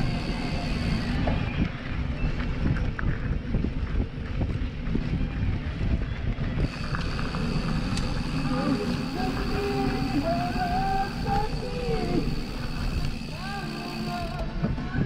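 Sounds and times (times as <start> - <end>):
wind on microphone: 0.0 - 15.0
bike rattling over dirt track: 6.5 - 14.9.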